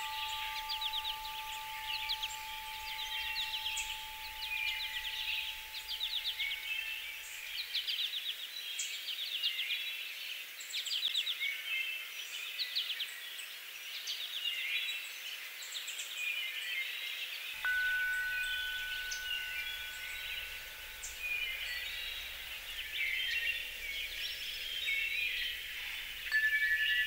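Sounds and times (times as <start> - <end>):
steady high tone: 0.0 - 7.2, 17.6 - 27.0
songbirds chirping: 0.0 - 8.4, 17.6 - 27.0.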